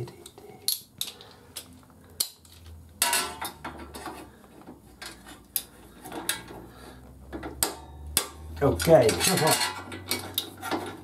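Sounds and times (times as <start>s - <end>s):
metal tools clinking on engine: 8.6s - 10.8s.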